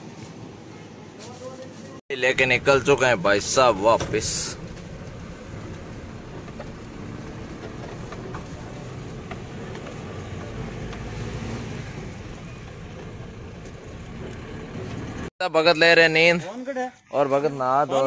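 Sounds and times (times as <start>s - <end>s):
road rumble: 0.0s - 16.4s
low engine hum: 1.7s - 15.3s.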